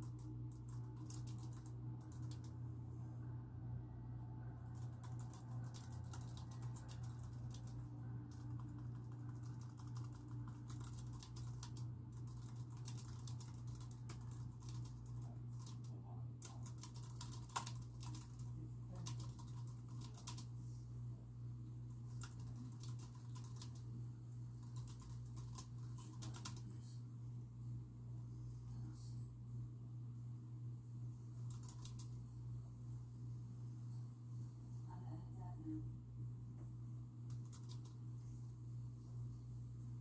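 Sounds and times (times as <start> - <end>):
computer keyboard typing: 0.0 - 2.6, 4.7 - 20.5, 22.1 - 23.9, 24.6 - 26.7, 31.5 - 32.2, 37.3 - 38.0
steady low hum: 0.0 - 40.0.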